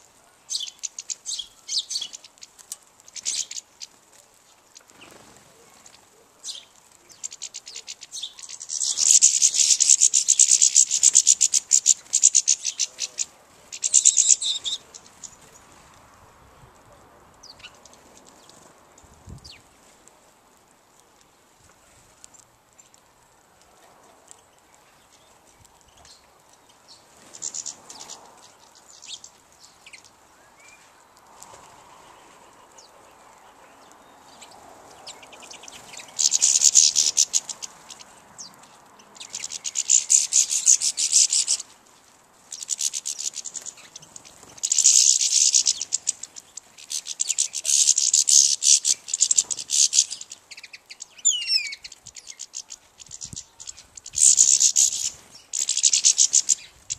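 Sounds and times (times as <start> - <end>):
faint bird chirps: 0.0 - 15.8, 24.3 - 31.0, 31.7 - 41.8, 42.4 - 56.9
songbird singing high trills: 0.5 - 2.4, 6.4 - 15.4, 33.7 - 41.7, 42.5 - 56.9.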